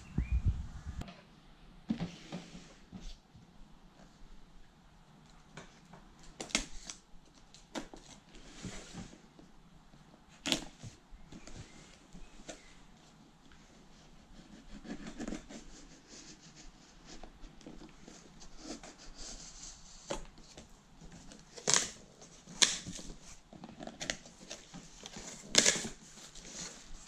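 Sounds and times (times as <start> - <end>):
cardboard and plastic rustling: 17.2 - 27.0
tape and plastic peeling: 20.0 - 27.0.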